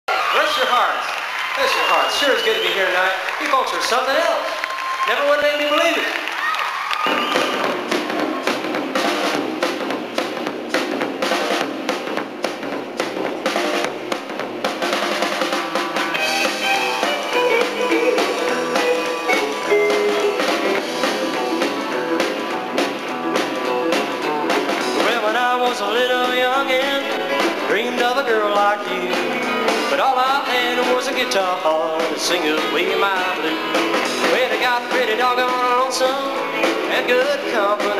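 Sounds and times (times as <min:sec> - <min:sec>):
country rock band playing: 0:00.1 - 0:37.9.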